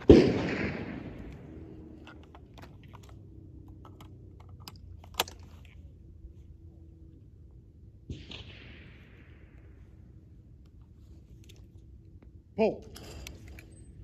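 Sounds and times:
loud gunshot bang: 0:00.0 - 0:01.1
shells clicking and rattling: 0:00.0 - 0:06.0, 0:12.8 - 0:14.0.

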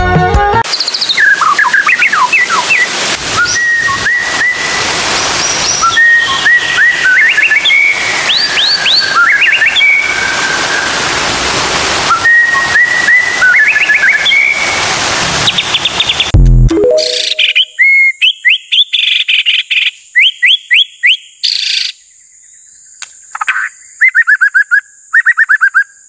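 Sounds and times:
bird singing whistled notes: 0:00.7 - 0:10.9, 0:12.1 - 0:14.8, 0:15.4 - 0:21.9, 0:23.9 - 0:25.9
steady hiss: 0:00.7 - 0:16.3.

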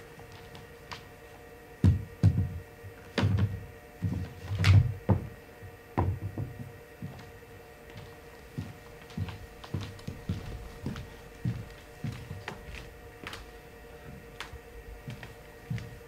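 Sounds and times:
chair knocking on floor: 0:01.8 - 0:05.4, 0:06.0 - 0:07.2.

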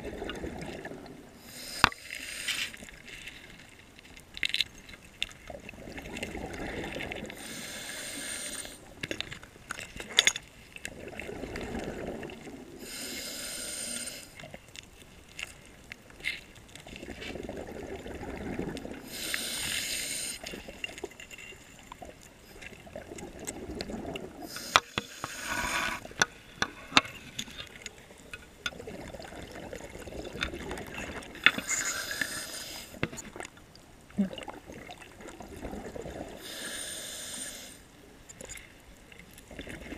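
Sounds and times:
regulator hissing inhale: 0:01.4 - 0:02.8, 0:07.4 - 0:08.9, 0:12.8 - 0:14.4, 0:19.0 - 0:20.5, 0:24.4 - 0:26.1, 0:31.6 - 0:33.0, 0:36.4 - 0:37.9
exhale bubbling: 0:05.7 - 0:08.9, 0:10.9 - 0:14.4, 0:17.0 - 0:20.8, 0:22.8 - 0:27.1, 0:34.1 - 0:37.8.

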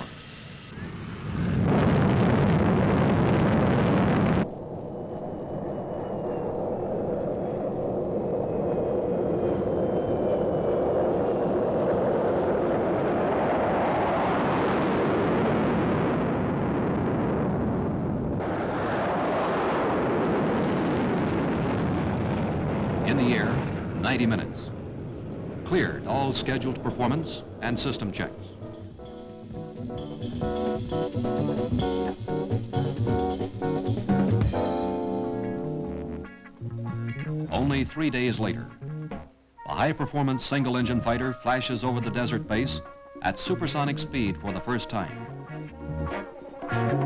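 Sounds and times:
faint high whine: 0:00.0 - 0:31.6
jet engine roar: 0:00.0 - 0:38.8.

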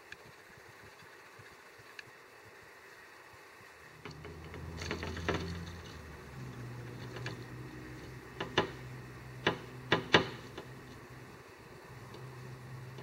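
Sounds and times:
bird pecking on glass: 0:04.0 - 0:10.9.

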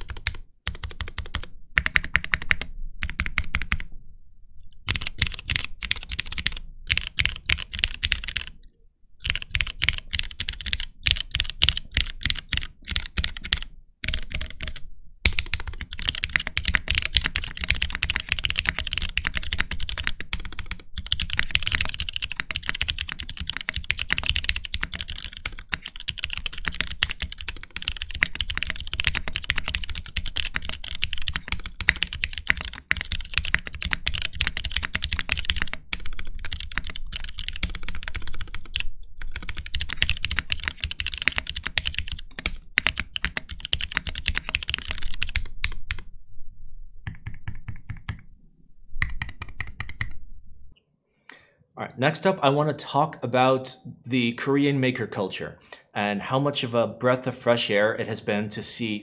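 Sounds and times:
fast keyboard typing: 0:00.0 - 0:03.9, 0:04.8 - 0:08.6, 0:09.2 - 0:46.1, 0:47.1 - 0:48.3, 0:49.0 - 0:50.2.

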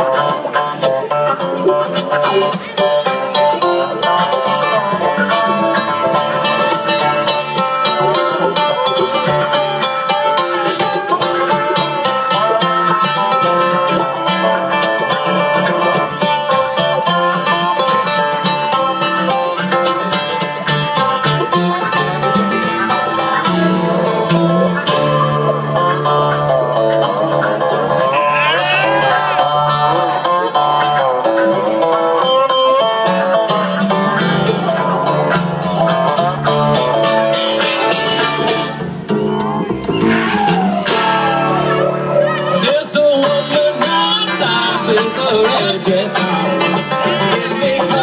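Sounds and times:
bluegrass string band playing: 0:00.0 - 0:48.0.

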